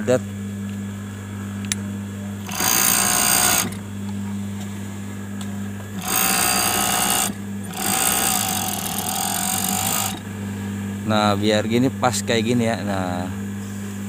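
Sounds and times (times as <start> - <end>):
steady low hum: 0.0 - 14.0
overlock machine stitching: 2.4 - 3.8, 6.0 - 10.2.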